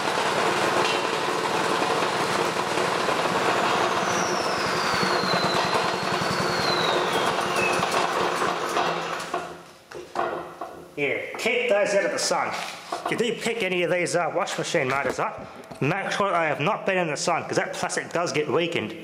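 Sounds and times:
small engine running: 0:00.0 - 0:09.1.

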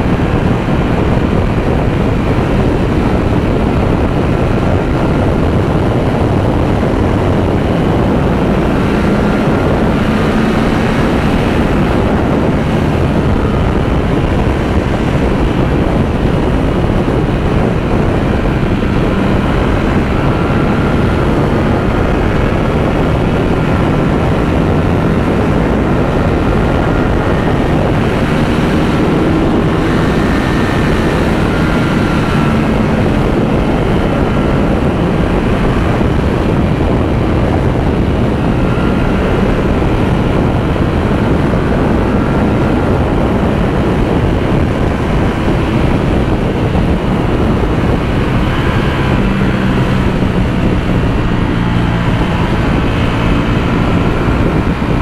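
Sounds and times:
motorcycle engine drone: 0:00.0 - 0:55.0
wind rush on microphone: 0:00.0 - 0:55.0.

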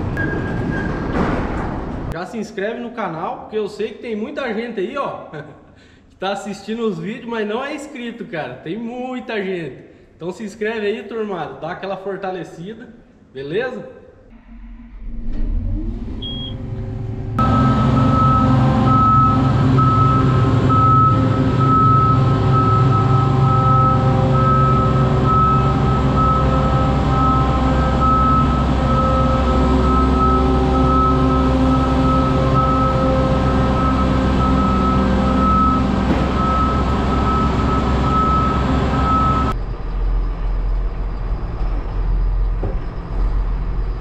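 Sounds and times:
heavy vehicle engine running: 0:14.4 - 0:44.0
electronic warning beeps: 0:17.4 - 0:39.6.

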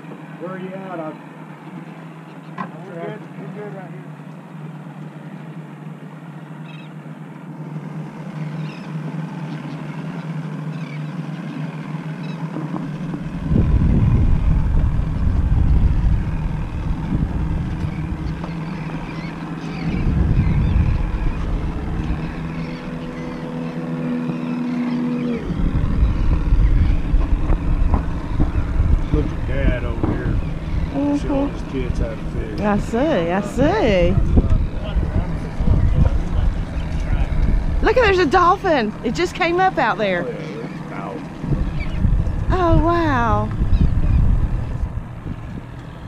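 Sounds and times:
higher steady hum: 0:00.0 - 0:46.0
motorboat engine humming: 0:00.0 - 0:46.0
wind buffeting microphone: 0:12.4 - 0:46.0.

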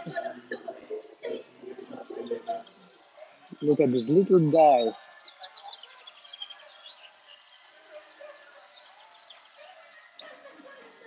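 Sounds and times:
faint high bird chirps: 0:03.5 - 0:10.4.

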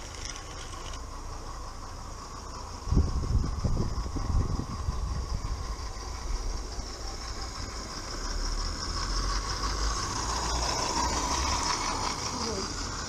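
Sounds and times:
steam locomotive running on track: 0:00.0 - 0:13.0.

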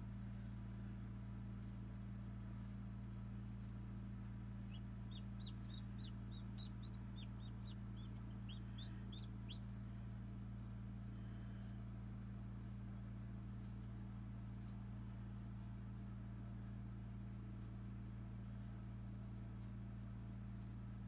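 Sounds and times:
steady low hum: 0:00.0 - 0:21.0
chick peeping: 0:04.6 - 0:09.7.

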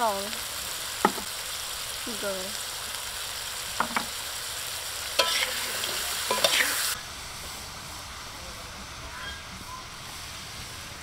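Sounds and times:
peppercorns sizzling in oil: 0:00.0 - 0:11.0
spatula scraping a wok: 0:05.1 - 0:07.0.

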